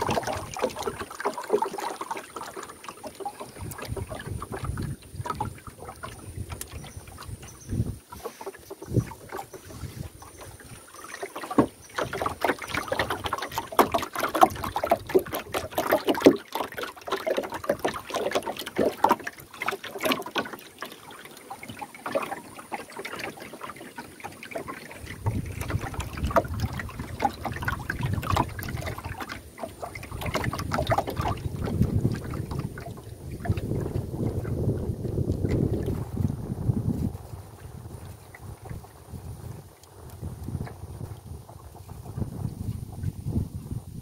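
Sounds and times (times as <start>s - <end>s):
wind rumble on microphone: 0.0s - 1.1s, 3.4s - 10.9s, 11.6s - 16.3s, 25.0s - 44.0s
water splashing: 0.0s - 44.0s.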